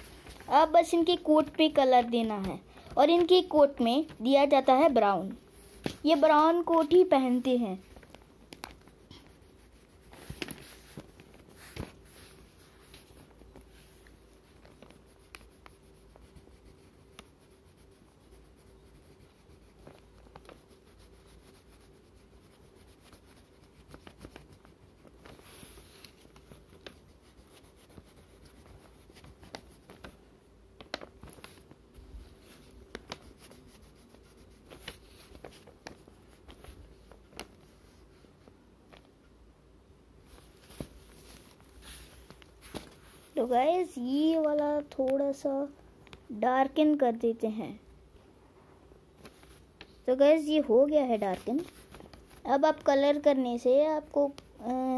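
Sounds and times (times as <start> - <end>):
taps and paper rustles: 0.0 - 5.0, 5.6 - 9.4, 10.0 - 17.4, 19.6 - 21.1, 22.8 - 30.2, 30.8 - 39.2, 40.3 - 45.2, 49.2 - 50.0, 51.1 - 53.2
crayon scratching on paper: 3.0 - 8.1, 8.7 - 13.2, 13.8 - 30.1, 32.1 - 36.9.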